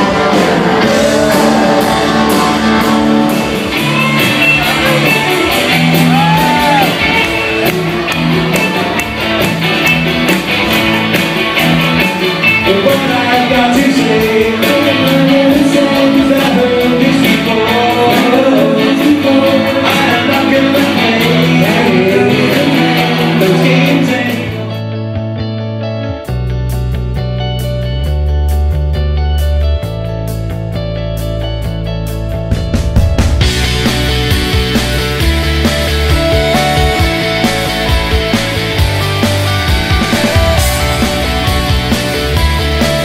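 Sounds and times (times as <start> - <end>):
person singing: 0.0 - 8.1, 12.4 - 24.8
live rock band playing: 0.0 - 43.0.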